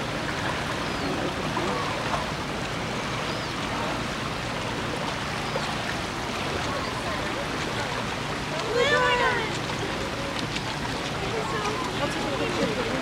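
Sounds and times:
rushing water: 0.0 - 13.0.

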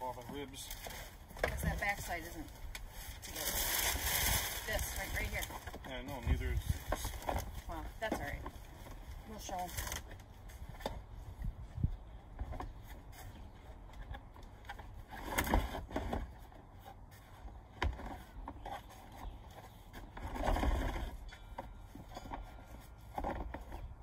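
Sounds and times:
plastic planter tiers scraping: 12.3 - 24.0.

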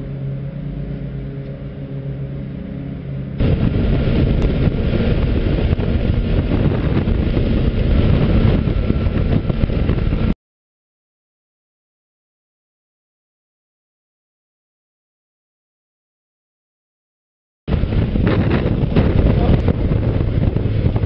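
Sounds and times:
motorcycle engine at speed: 0.0 - 10.4, 17.7 - 21.0
wind rush on microphone: 3.3 - 10.4, 17.7 - 21.0.

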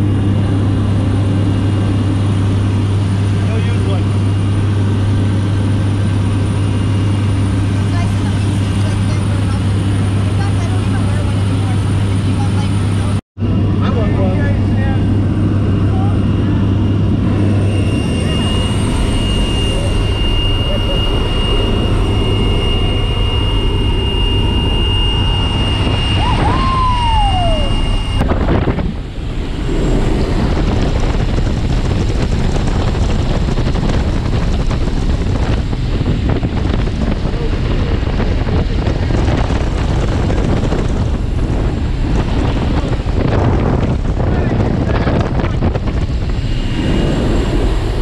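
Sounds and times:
aircraft engine drone: 0.0 - 48.0
rushing air in cabin: 16.5 - 48.0
falling whistle: 17.8 - 28.2.

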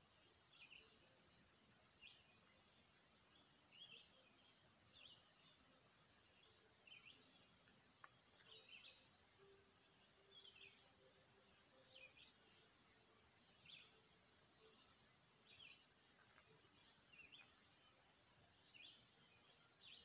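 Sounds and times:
faint bird chirping: 0.0 - 20.0
low hiss: 0.0 - 20.0
faint click: 7.6 - 8.9.

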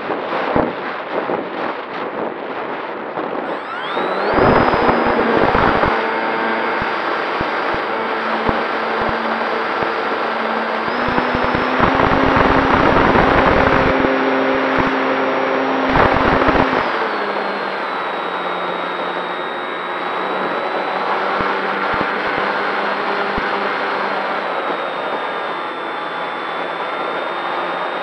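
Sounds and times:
wind buffeting microphone: 0.0 - 14.1
electric motor and propeller whine: 0.0 - 28.0.

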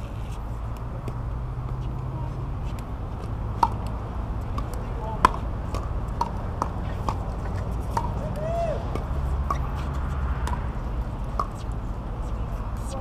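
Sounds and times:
steady low rumble: 0.0 - 13.0
paddles hitting plastic ball: 3.6 - 8.2.

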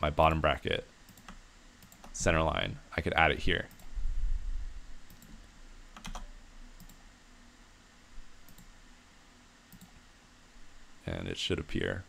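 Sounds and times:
faint low hum: 0.0 - 12.0
computer mouse clicks: 1.1 - 2.2, 5.1 - 7.0, 8.5 - 8.7, 9.7 - 10.0.

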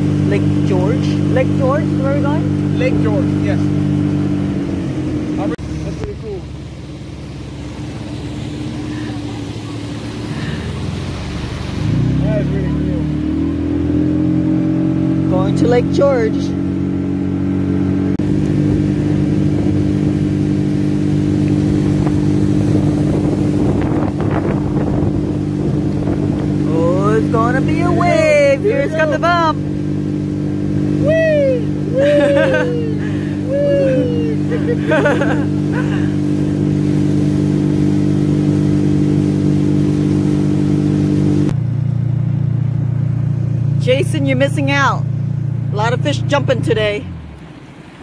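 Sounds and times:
motorboat engine running: 0.0 - 48.0
water rushing: 0.0 - 48.0
wind on microphone: 18.2 - 28.7.

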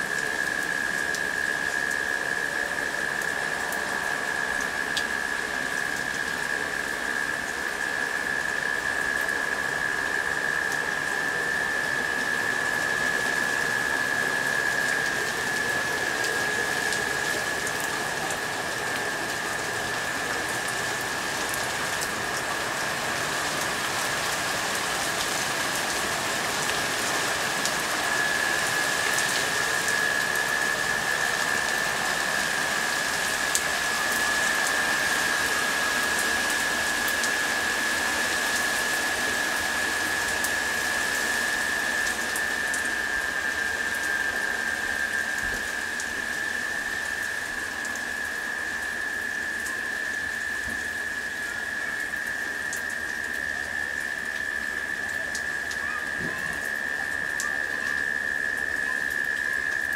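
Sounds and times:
cicadas humming: 0.0 - 59.9
rain falling on leaves: 0.0 - 59.9
raindrop ticks: 52.1 - 56.4.

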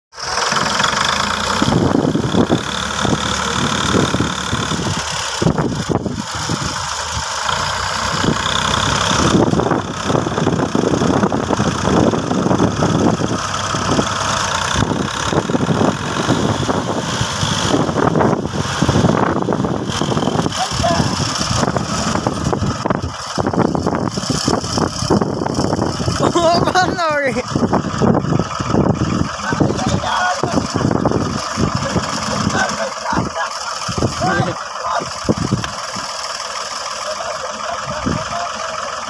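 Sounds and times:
tractor diesel engines under load: 0.1 - 39.0.

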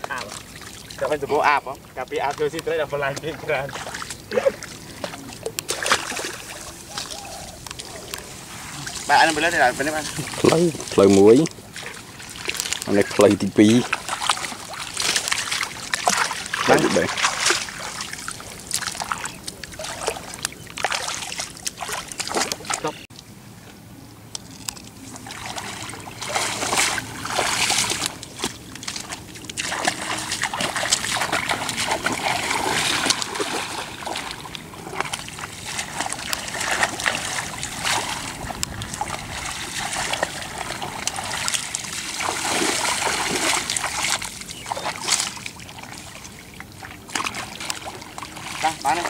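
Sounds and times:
splashing in muddy water: 2.2 - 23.1, 24.6 - 49.0.

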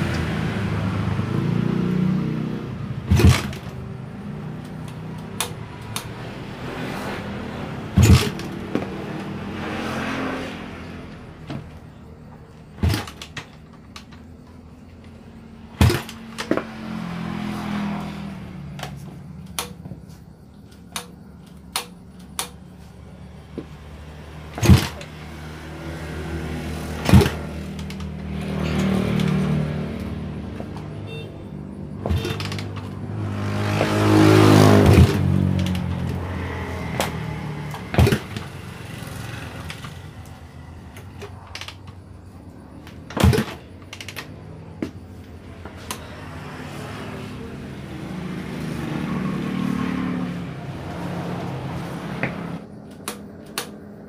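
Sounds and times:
motorcycle kick-starting: 0.0 - 6.2, 7.9 - 9.4, 24.5 - 25.2, 26.2 - 31.0, 31.9 - 46.2
engine revving in short spurts: 0.0 - 11.1, 24.3 - 30.2, 31.9 - 41.9.

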